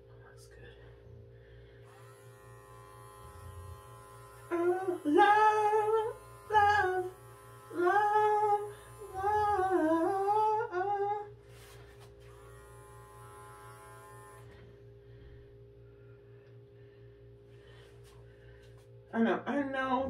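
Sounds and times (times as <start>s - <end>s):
electric pet trimmer humming: 1.8s - 10.7s, 12.2s - 14.8s
woman singing wordless melody: 4.5s - 11.3s.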